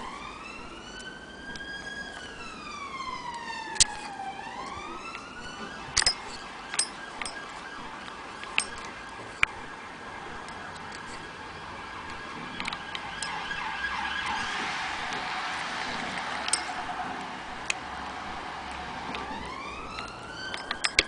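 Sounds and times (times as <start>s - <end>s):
siren wailing: 0.0s - 21.0s
sharp clicks: 3.2s - 4.1s, 12.0s - 13.6s, 15.9s - 21.0s.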